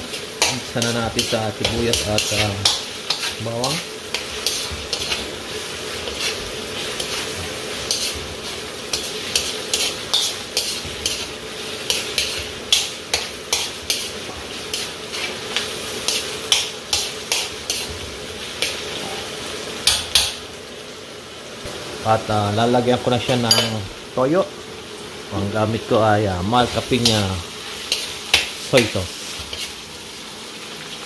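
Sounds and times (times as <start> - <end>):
food sizzling in a wok: 0.0 - 31.0
metal spatula scraping pan: 0.4 - 18.0.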